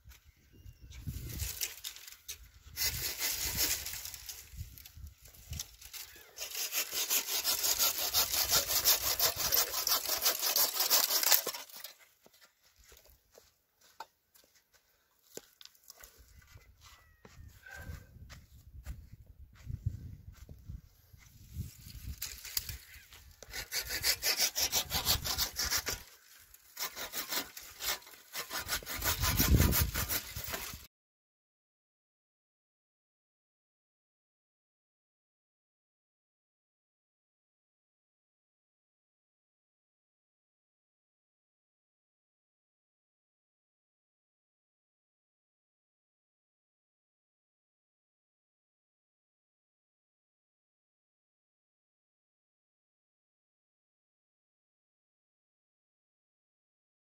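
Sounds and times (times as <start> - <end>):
fast rasping scraping strokes: 1.1 - 12.2, 21.7 - 30.9
hand saw cutting wood: 1.4 - 12.5, 22.0 - 30.9.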